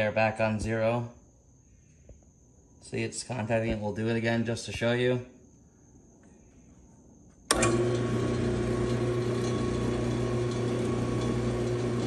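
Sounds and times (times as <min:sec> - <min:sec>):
drill press motor humming: 0:07.5 - 0:12.0.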